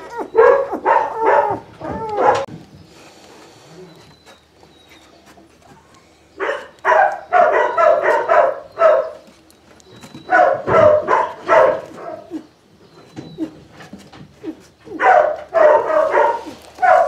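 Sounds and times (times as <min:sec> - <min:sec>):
puppies yelping and whining: 0:00.0 - 0:02.5, 0:03.7 - 0:06.4, 0:07.1 - 0:15.0.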